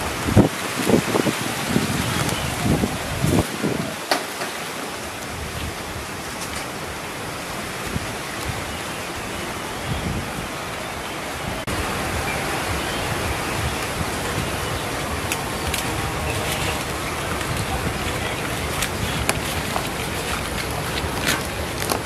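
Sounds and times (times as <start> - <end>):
steady outdoor hiss: 0.0 - 22.0
leaves rustling and clicking: 0.2 - 6.9, 13.4 - 22.0.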